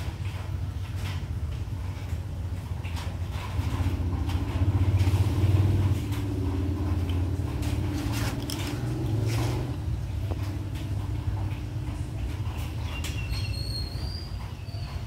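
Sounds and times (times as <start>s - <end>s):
kittens crunching dry food: 0.0s - 13.0s
vehicle engine humming: 0.3s - 13.4s.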